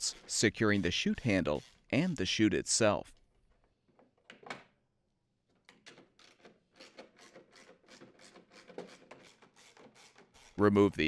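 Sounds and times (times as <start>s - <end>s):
tool scraping: 0.0s - 2.3s, 5.9s - 11.0s
socket ratchet clicking: 5.8s - 10.6s.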